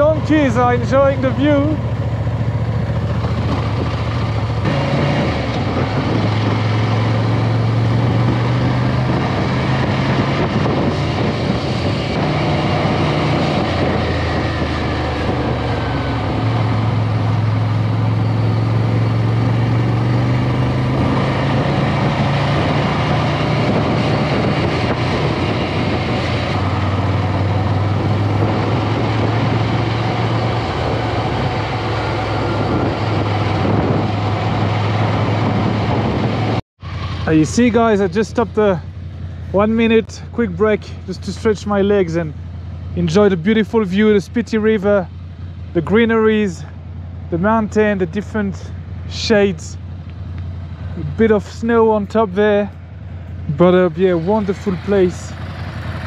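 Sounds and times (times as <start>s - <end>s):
wind rush: 0.0s - 38.1s
motorcycle engine running: 0.0s - 56.0s.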